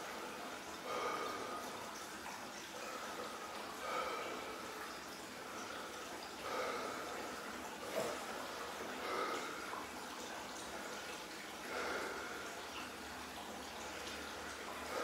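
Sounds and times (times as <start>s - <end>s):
man breathing heavily: 0.8s - 1.8s, 2.9s - 4.8s, 5.5s - 9.8s, 11.7s - 12.6s, 14.8s - 15.0s.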